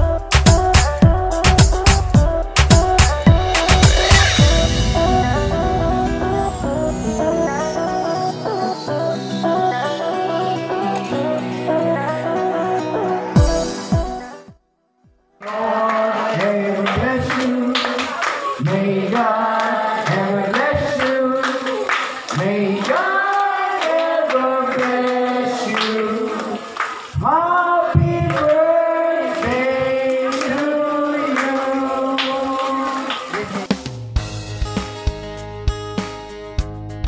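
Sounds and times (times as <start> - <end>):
group of voices singing: 15.4 - 33.4.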